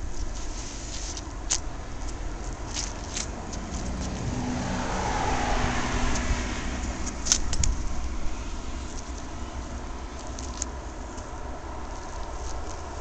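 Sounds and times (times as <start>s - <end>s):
steady low rumble: 0.0s - 13.0s
sneaker squelching on wet concrete: 1.0s - 4.6s
motor vehicle passing: 2.5s - 13.0s.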